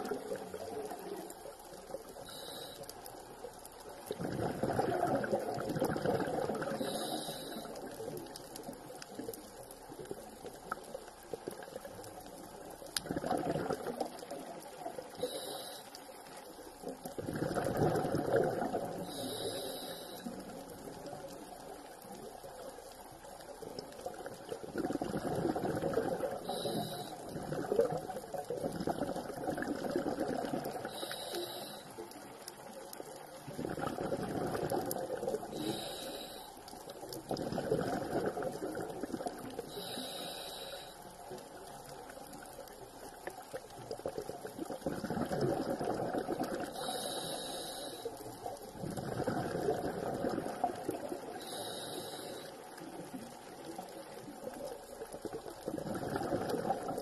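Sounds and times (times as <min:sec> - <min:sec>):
hissing inhale through regulator: 0:02.1 - 0:03.2, 0:06.3 - 0:08.2, 0:14.2 - 0:16.6, 0:18.3 - 0:20.8, 0:25.9 - 0:28.6, 0:30.6 - 0:32.2, 0:34.5 - 0:36.9, 0:39.5 - 0:41.4, 0:46.6 - 0:48.7, 0:50.8 - 0:52.9
exhaled bubbles rushing: 0:04.1 - 0:06.9, 0:13.0 - 0:14.6, 0:17.0 - 0:19.1, 0:24.0 - 0:26.7, 0:27.3 - 0:30.9, 0:33.4 - 0:35.6, 0:37.1 - 0:39.7, 0:43.8 - 0:46.8, 0:48.8 - 0:51.4, 0:54.3 - 0:57.0.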